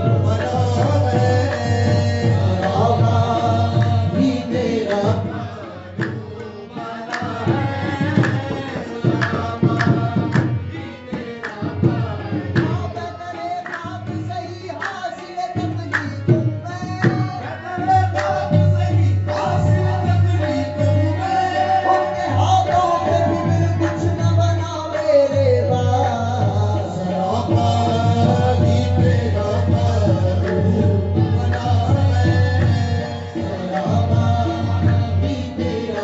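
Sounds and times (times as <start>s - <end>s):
tabla drumming: 0.0s - 36.0s.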